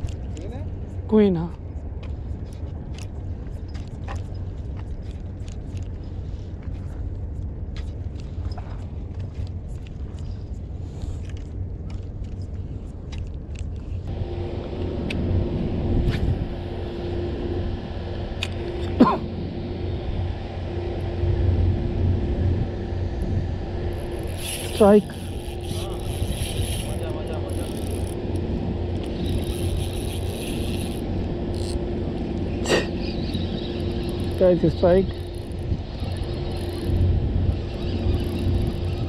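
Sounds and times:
steady low rumble: 0:00.0 - 0:39.0
fishing reel whirring: 0:14.2 - 0:21.6, 0:22.7 - 0:39.0.

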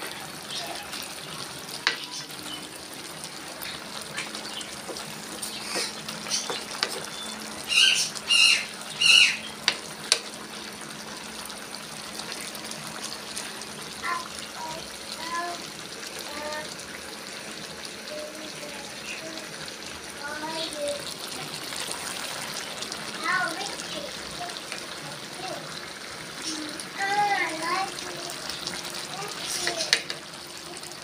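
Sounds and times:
stew simmering in a wok: 0:00.0 - 0:31.0
loud high calls: 0:07.2 - 0:09.6.

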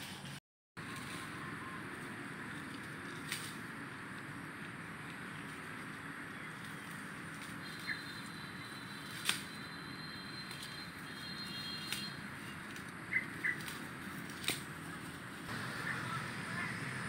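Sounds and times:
birds chirping: 0:04.5 - 0:14.2, 0:14.8 - 0:17.0
twigs and leaves snapping: 0:09.1 - 0:09.6, 0:11.8 - 0:15.0.

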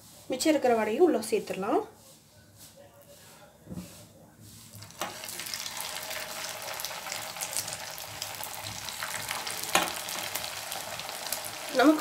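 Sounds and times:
deep-frying crackling sizzle: 0:04.7 - 0:12.0.

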